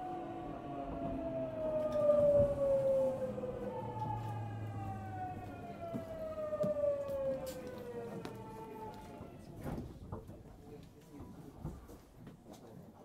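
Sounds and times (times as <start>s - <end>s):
electric train motors whining: 0.0s - 9.8s
low running rumble: 0.0s - 10.2s.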